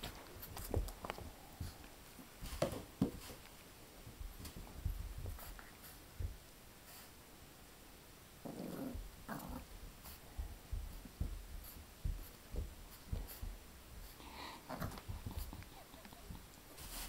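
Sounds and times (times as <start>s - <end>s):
puppy scuffling on carpet: 0.0s - 7.1s, 9.7s - 14.2s, 16.7s - 17.0s.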